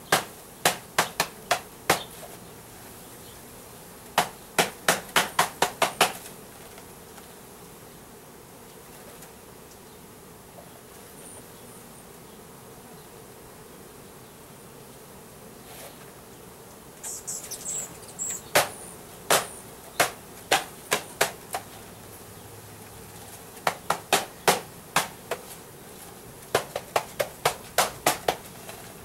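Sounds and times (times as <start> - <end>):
bees buzzing: 0.0 - 29.0
sharp knocks on wooden box: 0.1 - 2.2, 4.2 - 6.3, 18.5 - 21.7, 23.6 - 25.6, 26.5 - 28.5
scraping rustle: 15.6 - 16.2, 22.8 - 29.0.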